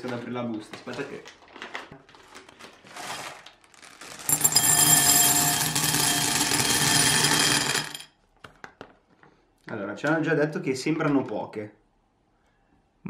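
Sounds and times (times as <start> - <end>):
plastic bag crinkling: 0.4 - 4.3
candies pouring into glass bowl: 2.9 - 8.0.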